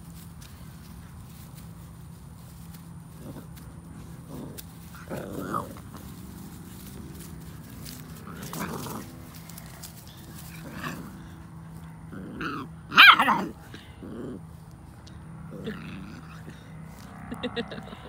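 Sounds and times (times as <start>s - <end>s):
puppies growling: 2.8s - 17.8s
puppy high-pitched bark: 12.9s - 13.5s.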